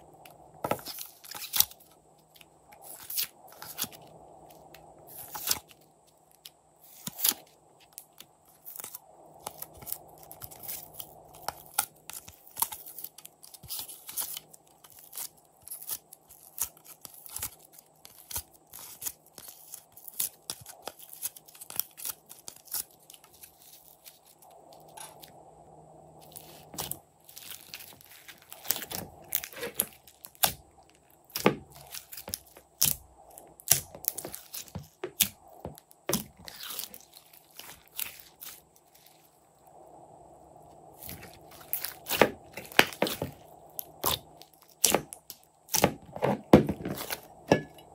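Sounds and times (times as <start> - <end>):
slime crackling and popping: 7.0 - 25.3, 26.3 - 39.1, 41.0 - 46.0.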